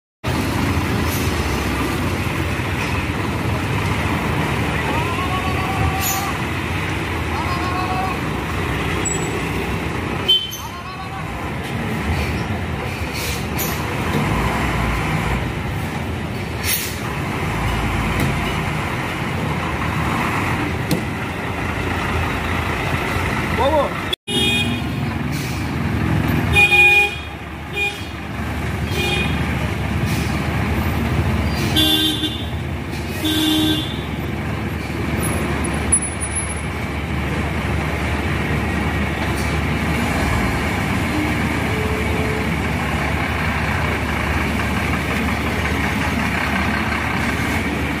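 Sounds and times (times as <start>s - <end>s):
bus diesel engine running: 0.2s - 48.0s
bus horn toots: 10.2s - 10.7s, 24.3s - 25.0s, 26.4s - 28.2s, 28.8s - 29.6s, 31.6s - 34.2s.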